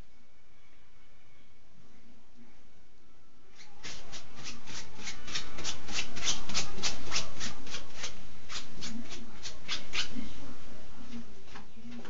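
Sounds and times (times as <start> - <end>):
cat scratching with paw: 3.5 - 10.2.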